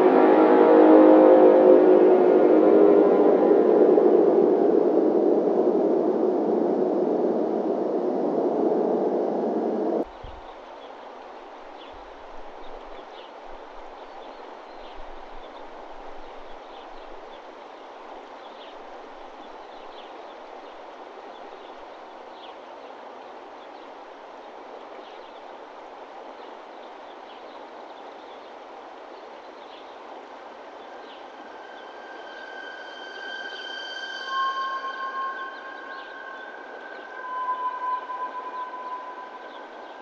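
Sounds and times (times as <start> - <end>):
steady synth tones: 0.0 - 10.0
hiss-like ambient noise: 0.0 - 40.0
faint high chirps: 30.8 - 40.0.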